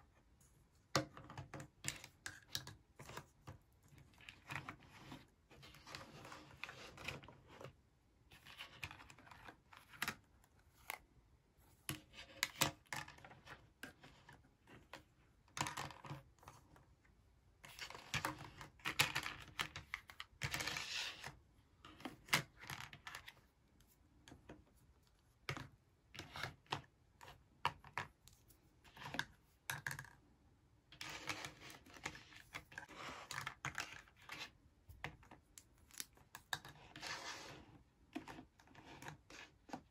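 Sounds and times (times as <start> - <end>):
plastic toy dishes clicking and scraping: 28.9 - 30.2, 31.0 - 39.9.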